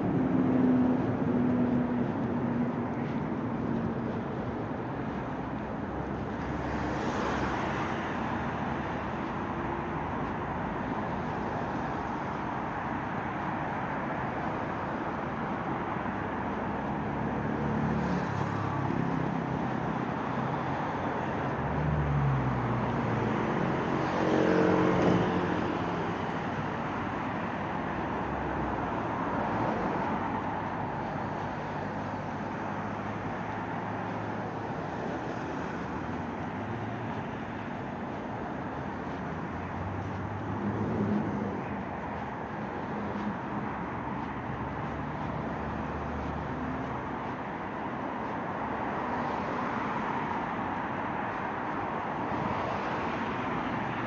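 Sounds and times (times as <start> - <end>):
road noise of passing cars: 0.0 - 54.0
heavy vehicle engine passing: 38.8 - 47.1.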